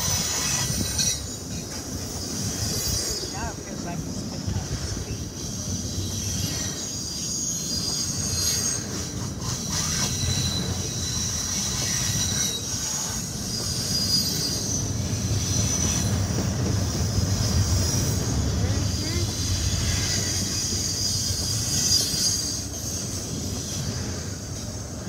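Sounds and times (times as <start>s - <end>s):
train wheels rumbling on rail: 0.0s - 25.0s
high-pitched wheel squeal: 5.1s - 24.5s.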